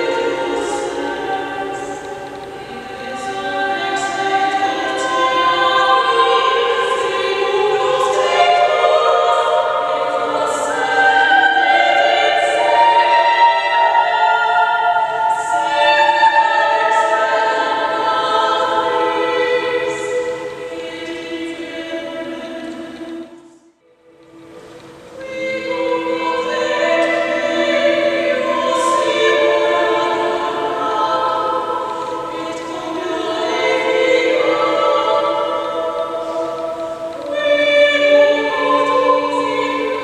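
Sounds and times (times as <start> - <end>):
women singing in harmony: 0.0 - 23.6, 24.2 - 40.0.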